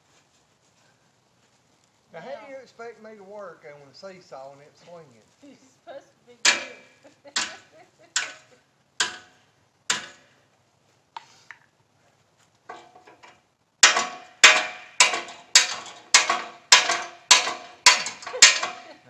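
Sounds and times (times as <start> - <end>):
hammer striking ringing metal: 6.4 - 10.3, 13.8 - 19.0.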